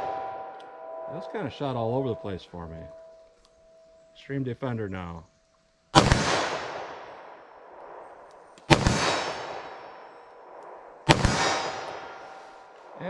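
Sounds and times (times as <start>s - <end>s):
revolver gunshots: 5.9s - 13.0s.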